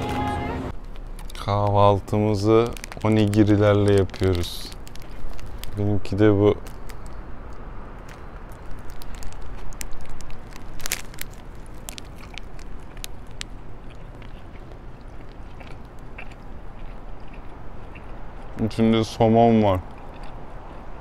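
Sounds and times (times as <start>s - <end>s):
sharp crackles: 0.8s - 16.4s
biting and chewing rice balls: 0.8s - 21.0s.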